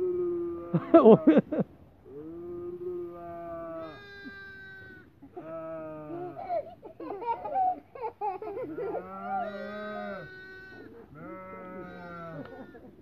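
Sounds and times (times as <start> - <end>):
man imitating bleat: 0.0 - 1.1, 2.1 - 6.4, 8.9 - 12.8
lamb bleating: 3.0 - 6.4, 8.8 - 12.8.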